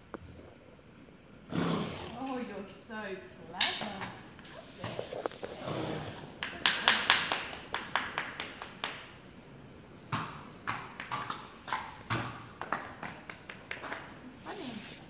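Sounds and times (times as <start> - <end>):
horse hooves on stable floor: 10.1 - 14.2.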